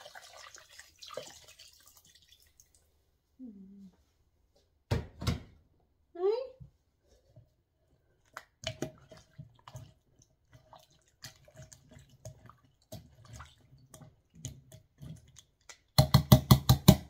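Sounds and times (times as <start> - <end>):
stew squelching and sloshing: 0.0 - 2.9, 7.0 - 16.0.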